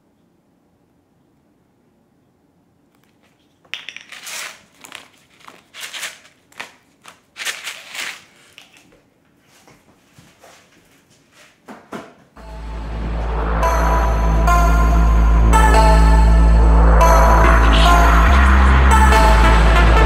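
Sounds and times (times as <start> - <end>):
music: 12.4 - 20.0.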